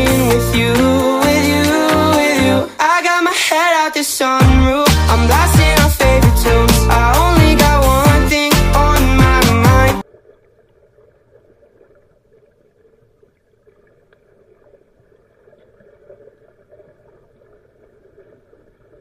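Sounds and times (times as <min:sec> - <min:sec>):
pop song with singing: 0:00.0 - 0:10.0.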